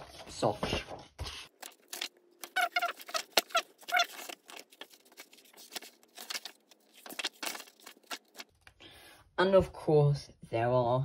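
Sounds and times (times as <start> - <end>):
book pages turning: 1.2 - 8.6
skin squeaking on paper: 1.5 - 8.5.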